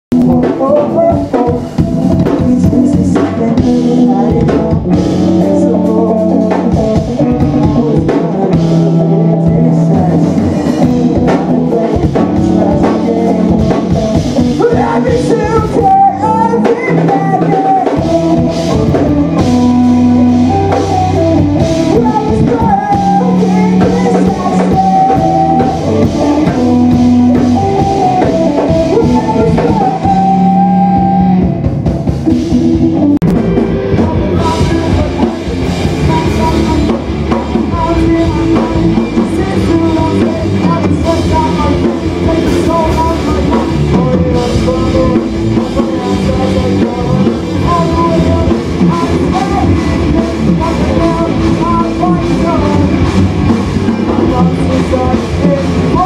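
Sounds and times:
drum kit: 0.1 - 56.0
electric guitars: 0.1 - 56.0
person singing: 0.1 - 56.0.

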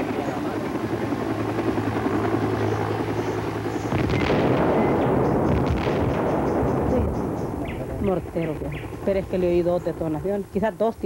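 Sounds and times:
helicopter droning: 0.0 - 11.0
sharp cracks: 3.8 - 7.6
rumbling detonation: 3.9 - 9.8.

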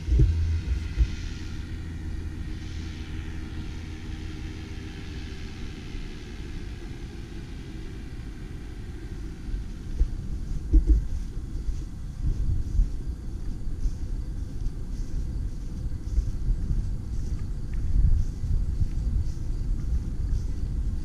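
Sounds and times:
low gusty thumps: 0.0 - 2.4
distant paramotor engine droning: 0.0 - 21.0
wind rumble on microphone: 0.0 - 21.0.

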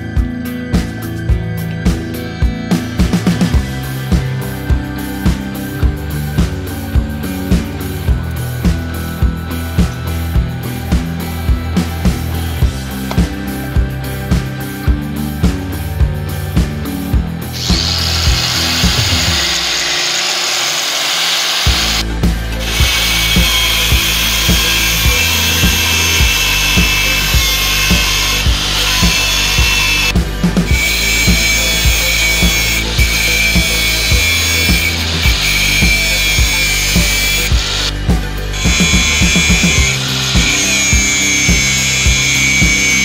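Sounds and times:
background music with steady beat: 0.0 - 43.0
angle grinder grinding steel: 17.4 - 43.0.

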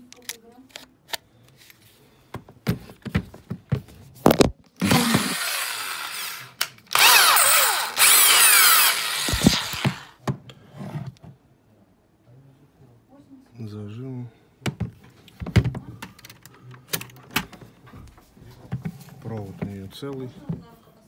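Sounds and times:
electric drill motor revving: 4.8 - 10.2.

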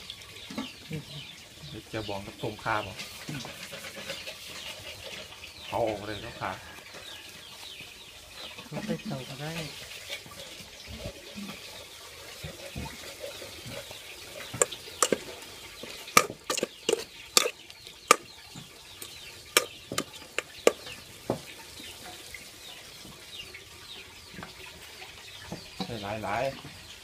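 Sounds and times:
sharp clicks and knocks: 14.5 - 18.3, 19.0 - 20.9.

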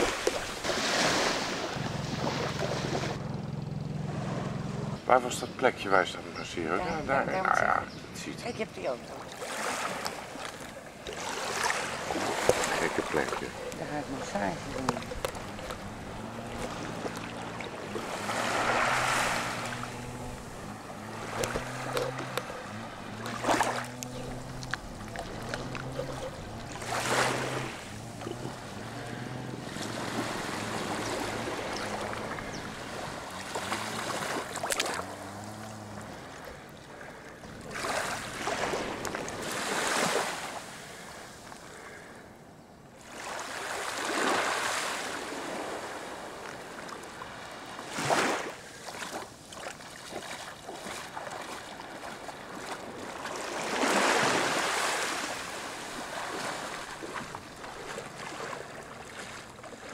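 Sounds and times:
small waves washing onto sand: 0.0 - 3.3, 8.9 - 42.2, 43.0 - 59.9
wind: 0.0 - 59.9
low hum shifting pitch: 1.7 - 5.1, 12.9 - 36.7.

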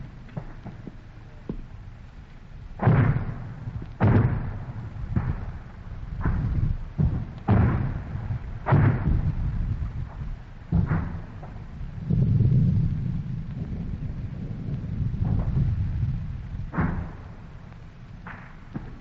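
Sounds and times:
artillery booms with low rumble: 0.0 - 19.0.

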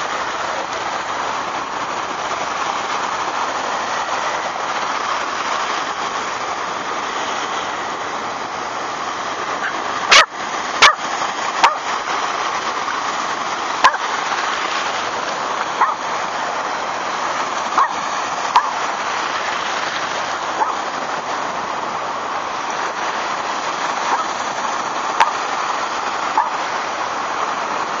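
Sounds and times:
surf washing: 0.0 - 28.0
small dog yapping: 9.6 - 11.0, 11.6 - 11.8, 13.8 - 14.0, 15.8 - 16.0, 17.8 - 18.0, 18.6 - 18.8, 20.6 - 20.8, 26.3 - 26.6.

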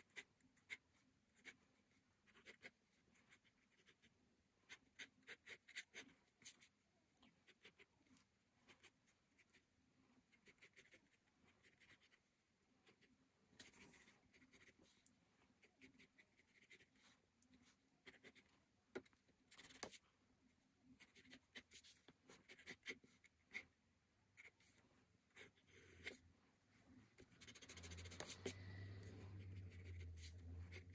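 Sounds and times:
pencil strokes on paper: 24.4 - 30.9.

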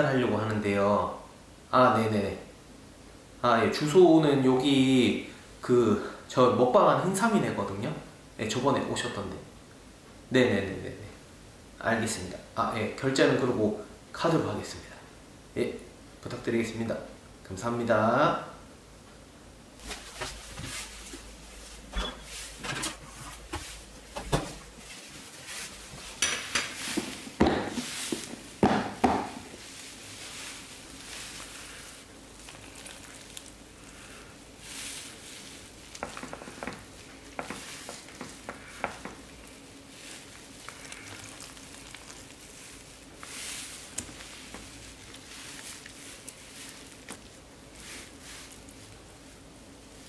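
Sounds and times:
soft wet squelching: 29.6 - 49.1.

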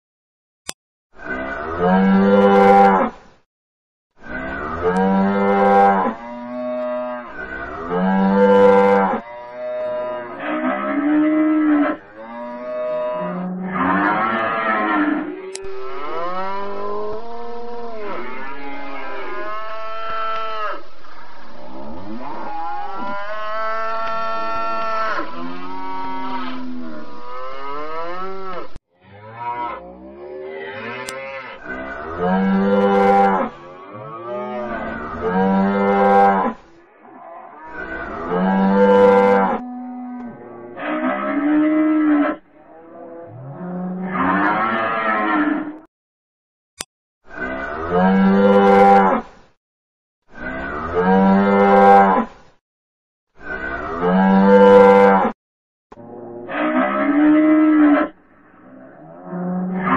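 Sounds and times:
cattle mooing: 4.2 - 20.8, 21.9 - 36.5, 53.4 - 55.3.

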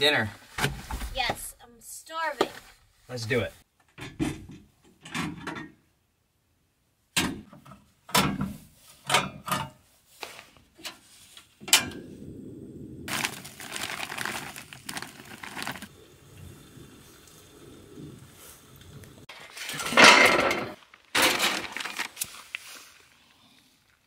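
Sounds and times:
camp stove clicks and knocks: 7.2 - 8.5
frozen food rattling into pan: 13.1 - 16.0, 19.3 - 23.0
gas burner hissing: 15.8 - 20.8.

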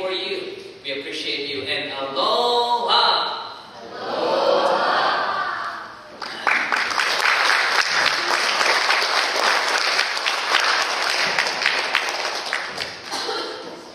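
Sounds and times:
audience applauding: 6.2 - 13.2.

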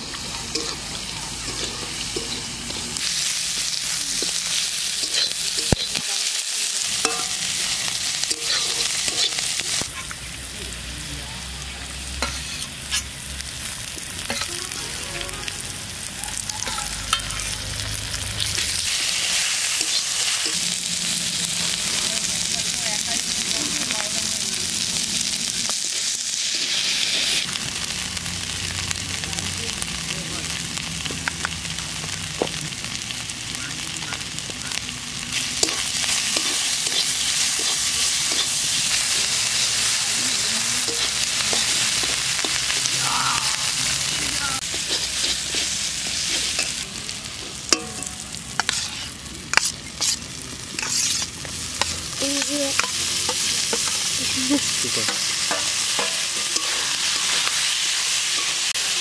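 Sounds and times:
onions sizzling in a wok: 0.0 - 59.0
steel spatula scraping a pan: 4.2 - 6.0, 7.0 - 10.0, 12.2 - 13.1, 35.6 - 40.0, 44.6 - 46.8, 47.7 - 54.1, 55.0 - 59.0.

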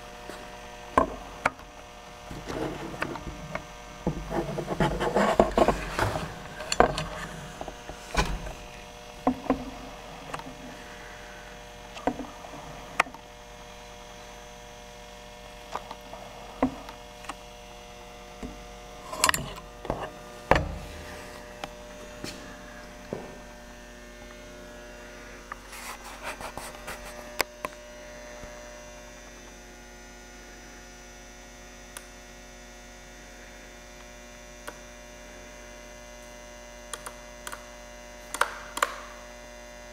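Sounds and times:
electrical hum: 0.0 - 39.9
sharp clicks and knocks: 2.3 - 8.6, 38.3 - 39.0.

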